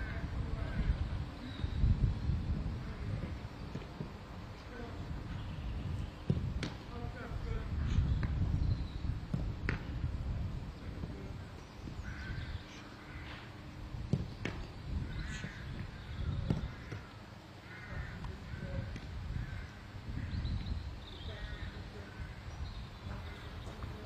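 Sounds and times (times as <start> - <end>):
footballs being kicked: 6.2 - 6.9, 9.2 - 9.9, 14.0 - 14.7, 15.3 - 17.1
distant calls: 11.4 - 24.0.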